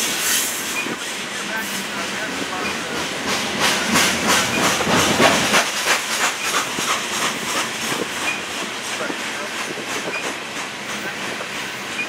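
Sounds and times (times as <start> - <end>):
train wheels clacking: 0.0 - 12.0.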